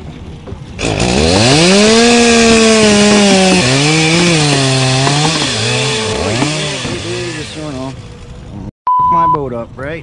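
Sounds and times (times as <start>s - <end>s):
electric motor whining: 0.8s - 8.6s.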